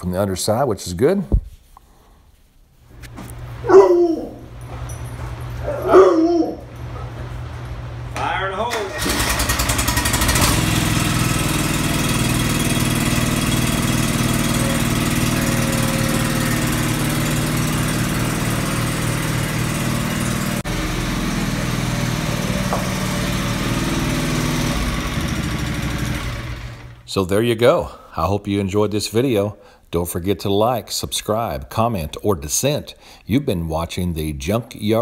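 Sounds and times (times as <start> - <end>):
lawn tractor engine idling: 8.2 - 27.1.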